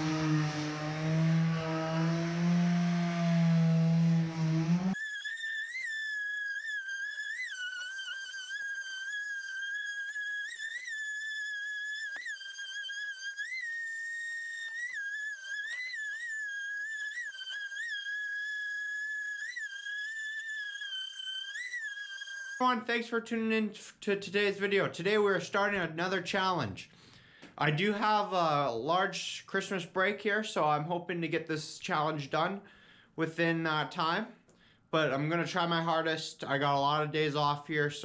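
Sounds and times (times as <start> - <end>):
orbital sander whining: 0.0 - 22.8.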